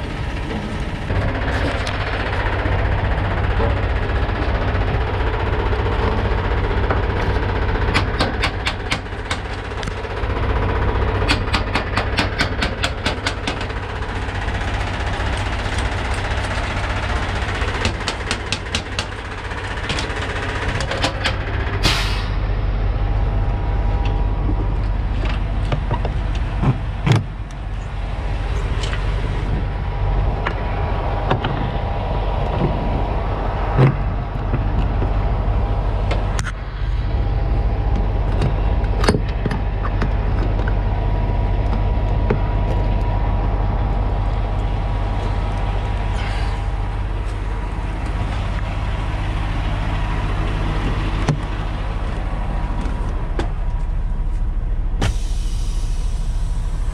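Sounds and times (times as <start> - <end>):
diesel engine idling: 0.0 - 56.9
air hiss burst: 21.8 - 22.4, 55.0 - 56.9.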